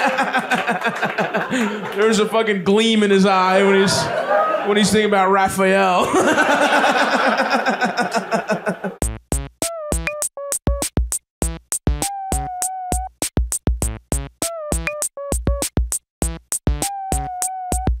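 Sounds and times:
drum-machine beat: 0:09.0 - 0:18.0.

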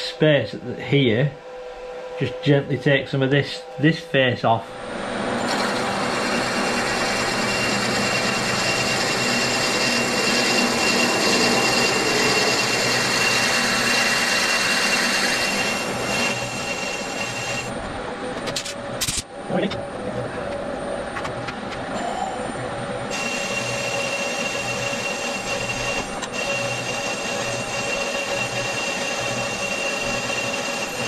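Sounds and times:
milling machine drilling with whine: 0:04.8 - 0:17.8, 0:21.9 - 0:31.0.

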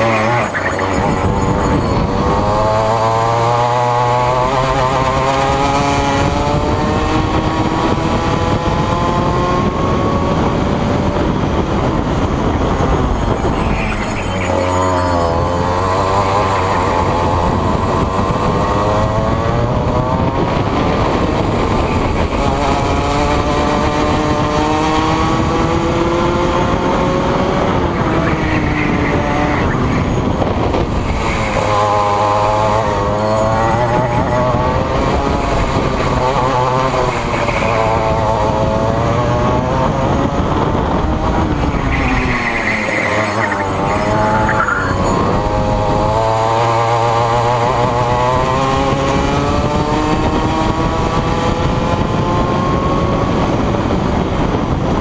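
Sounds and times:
kart engine revving: 0:00.0 - 0:55.0.

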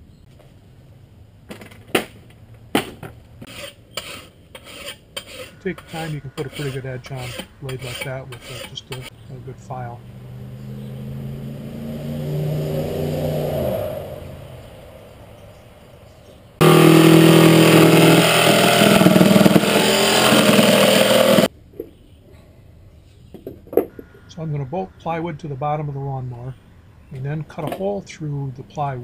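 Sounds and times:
jigsaw cutting plywood: 0:16.6 - 0:21.5
steady hum: 0:16.6 - 0:21.5.

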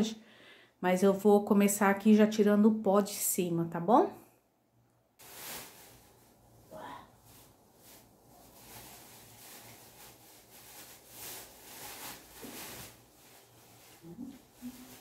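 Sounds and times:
faint rustling: 0:05.2 - 0:15.0.

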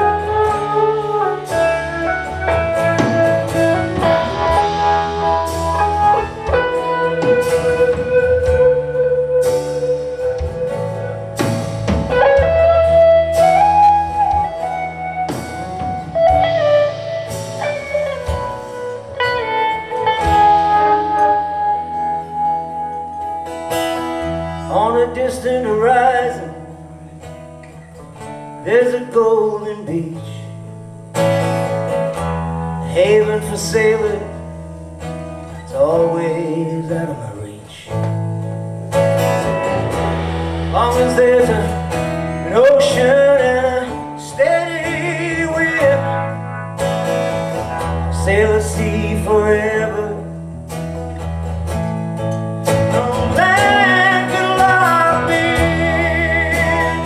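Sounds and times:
pitch-bending lead melody: 0:00.0 - 0:24.7, 0:38.4 - 0:43.2
live rock band playing: 0:00.0 - 0:57.0.

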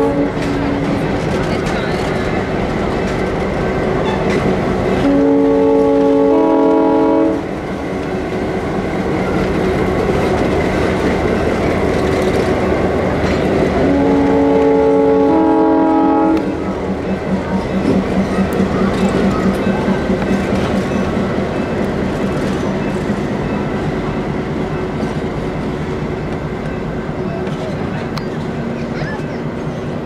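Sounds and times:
locomotive chime air horn: 0:00.0 - 0:00.8, 0:05.0 - 0:07.4, 0:13.8 - 0:16.6
diesel train running: 0:00.0 - 0:30.0.

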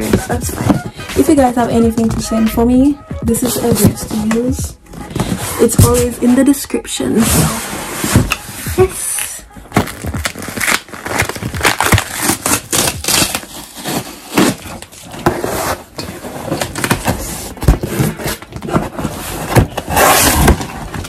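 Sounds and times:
packing tape tearing: 0:09.2 - 0:21.0.

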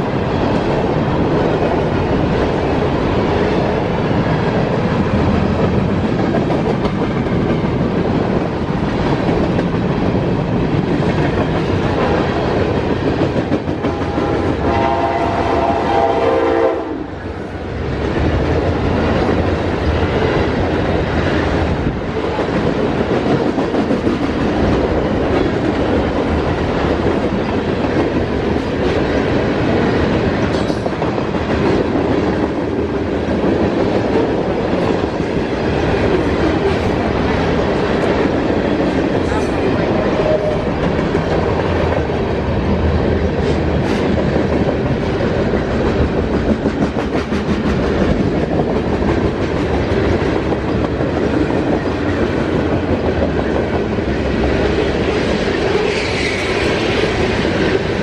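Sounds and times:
train wheels clacking: 0:00.0 - 0:16.8, 0:18.0 - 0:58.0
freight train rumble: 0:00.0 - 0:58.0
train horn chord: 0:14.0 - 0:17.1.

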